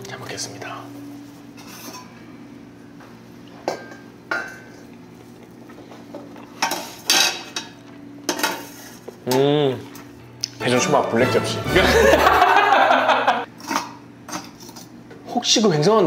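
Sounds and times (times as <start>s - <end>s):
chewing: 4.8s - 6.6s
man humming mmm: 9.2s - 10.0s.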